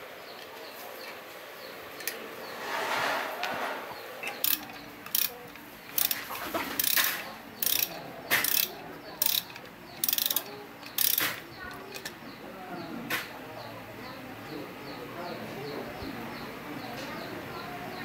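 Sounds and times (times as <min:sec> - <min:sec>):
short scraping noise: 0:02.5 - 0:04.0
ratchet wrench clicking: 0:04.2 - 0:12.2.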